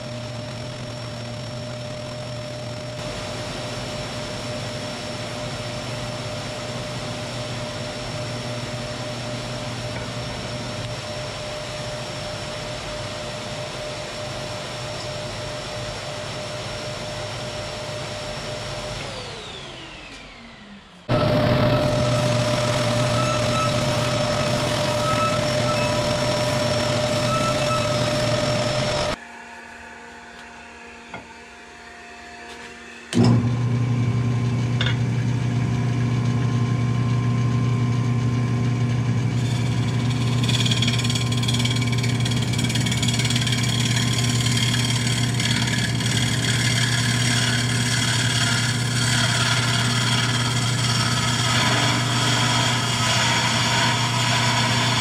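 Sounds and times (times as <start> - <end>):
wood lathe motor hum: 0.0 - 3.5, 16.4 - 29.2, 32.5 - 55.0
high ringing tones: 21.1 - 29.2.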